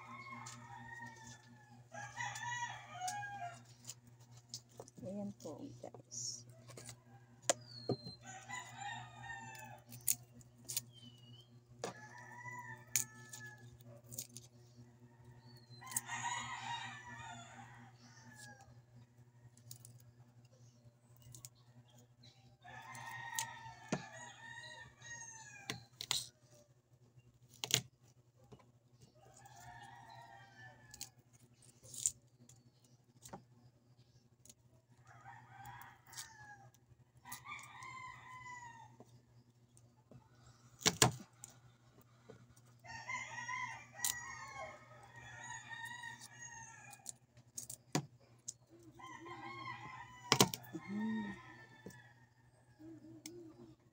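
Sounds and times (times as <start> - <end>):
rooster crowing: 0.0 - 3.7, 8.2 - 10.2, 11.8 - 13.9, 15.1 - 18.8, 22.6 - 25.9, 29.3 - 31.1, 35.0 - 39.0, 42.8 - 47.2, 48.8 - 53.9.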